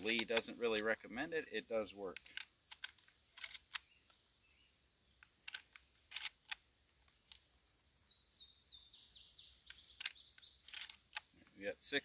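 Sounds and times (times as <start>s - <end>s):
songbird singing falling notes: 7.2s - 11.0s
cartridges clicking into rifle: 9.6s - 11.3s.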